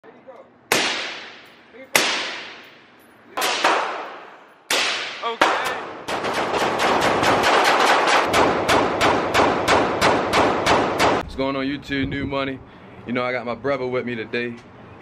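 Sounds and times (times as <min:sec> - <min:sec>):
echoing gunshots indoors: 0:00.7 - 0:11.2.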